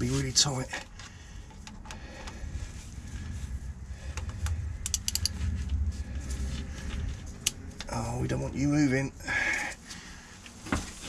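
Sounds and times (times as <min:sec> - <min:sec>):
low rumble: 0:01.1 - 0:10.4
ratchet pawl clicks: 0:04.8 - 0:05.3.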